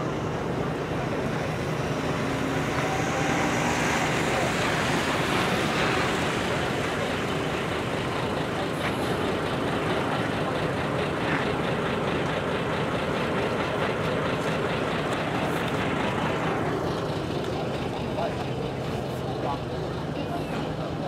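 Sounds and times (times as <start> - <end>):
truck engines running: 0.0 - 21.0
small car driving past: 1.2 - 7.5.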